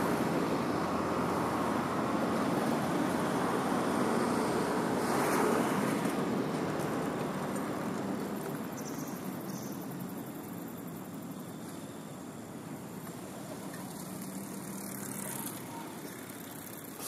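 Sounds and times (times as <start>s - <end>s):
passing vehicle rushing: 0.0s - 8.5s.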